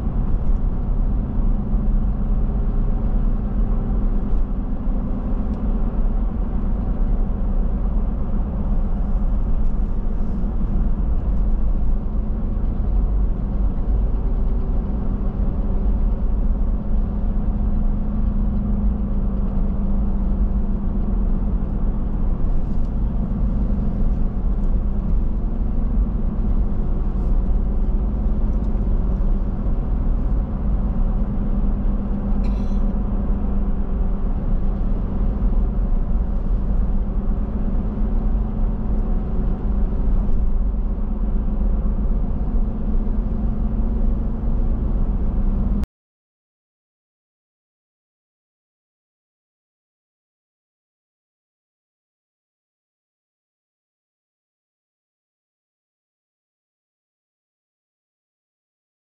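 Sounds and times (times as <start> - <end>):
car engine and road noise: 0.0 - 45.9.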